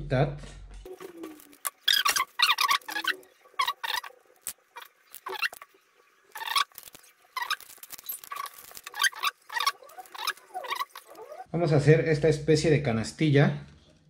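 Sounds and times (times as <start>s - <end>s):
wire being cut and bent: 1.0s - 5.7s, 6.3s - 11.5s.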